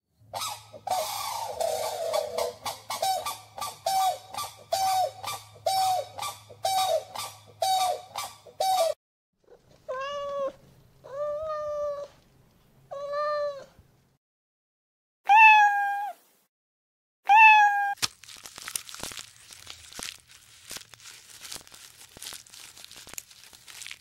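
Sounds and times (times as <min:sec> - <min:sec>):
cat meowing: 0:09.8 - 0:12.2, 0:12.9 - 0:13.8, 0:15.3 - 0:16.2, 0:17.3 - 0:18.0.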